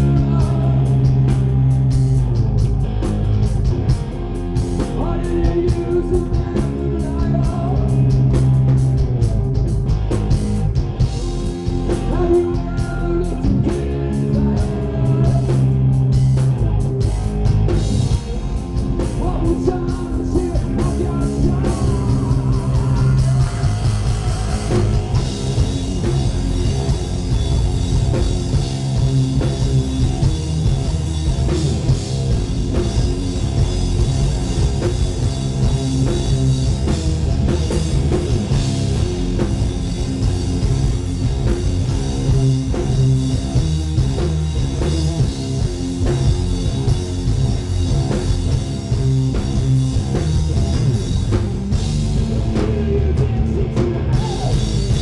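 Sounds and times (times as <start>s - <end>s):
man singing: 0.0s - 1.2s, 4.8s - 8.4s, 11.9s - 15.8s, 19.1s - 25.2s, 52.4s - 55.0s
distorted electric guitars: 0.0s - 55.0s
drum kit: 0.0s - 55.0s.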